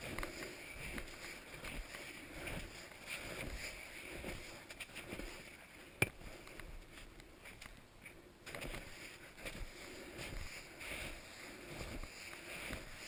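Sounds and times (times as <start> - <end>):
skis swishing through snow: 0.0 - 5.8, 8.5 - 13.0.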